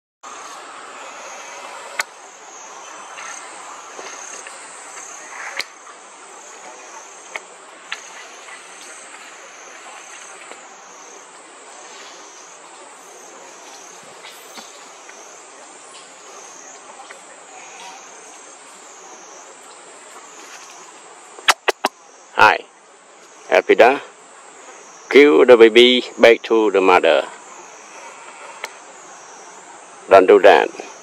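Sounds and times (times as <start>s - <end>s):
insect chorus drone: 0.2s - 31.0s.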